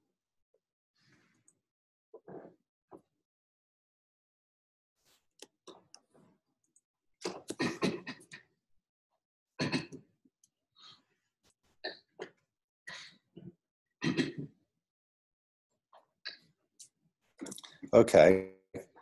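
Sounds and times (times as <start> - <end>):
person clearing throat: 7.4 - 8.3, 9.6 - 10.0, 14.0 - 14.5.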